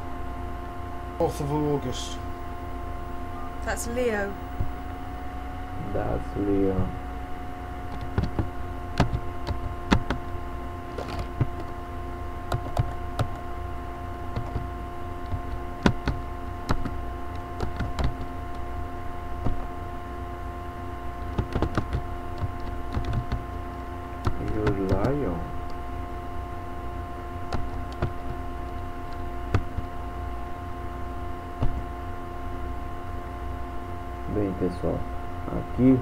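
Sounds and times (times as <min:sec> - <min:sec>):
steady electrical hum: 0:00.0 - 0:36.0
computer keyboard key clicks: 0:21.3 - 0:23.4.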